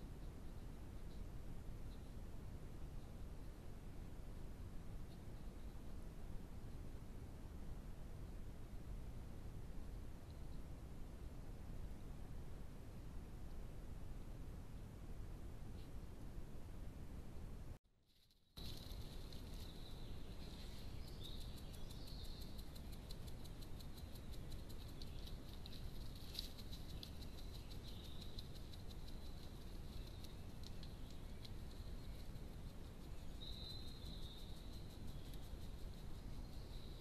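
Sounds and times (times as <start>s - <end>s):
microphone hiss: 0.0s - 17.8s, 18.6s - 37.0s
faint rapid high ticking: 18.6s - 37.0s.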